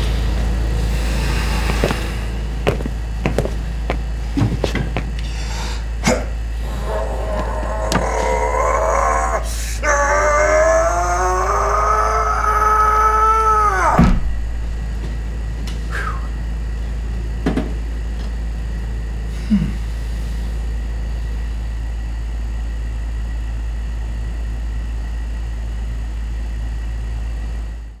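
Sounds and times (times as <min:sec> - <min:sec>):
steady low hum: 0:00.0 - 0:28.0
man groaning: 0:06.0 - 0:14.2, 0:19.4 - 0:19.9
thud: 0:14.0 - 0:14.8.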